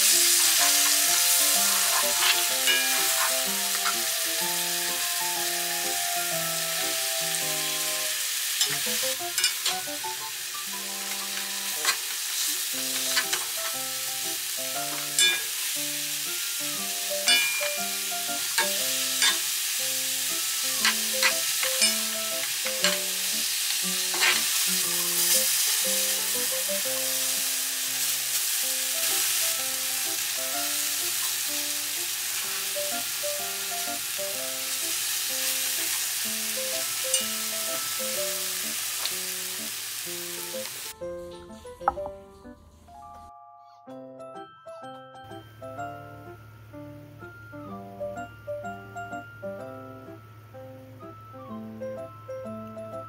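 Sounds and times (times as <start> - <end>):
mushrooms sizzling in a frying pan: 0.0 - 41.0
light background music: 0.0 - 53.0.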